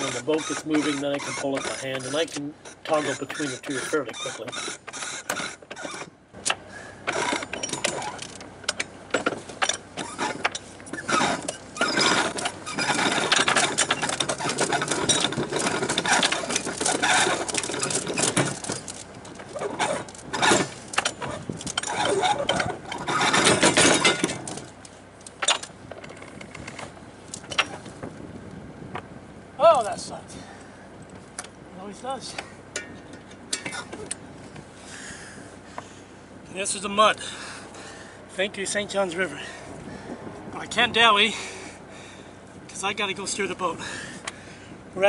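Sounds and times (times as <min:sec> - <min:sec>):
anchor chain clanking: 0:00.0 - 0:28.0, 0:31.1 - 0:34.3
boat engine idling: 0:00.0 - 0:45.0.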